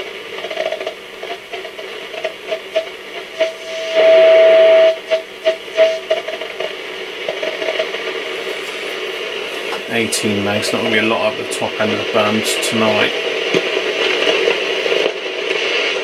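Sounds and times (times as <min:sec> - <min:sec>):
radio static hiss: 0:00.0 - 0:16.0
radio whistle beeps: 0:02.7 - 0:06.3.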